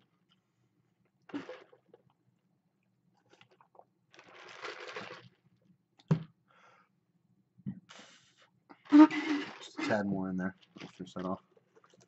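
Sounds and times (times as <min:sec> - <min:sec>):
sipping through a straw: 0:08.9 - 0:10.0
paper cup being handled: 0:08.9 - 0:12.0.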